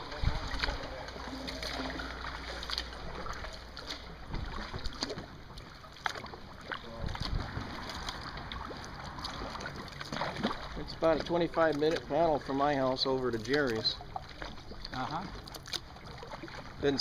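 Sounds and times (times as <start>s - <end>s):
wind rumble on microphone: 0.0s - 0.8s, 6.9s - 9.8s
water dripping: 0.0s - 16.8s
paddle splashing water: 0.0s - 17.0s.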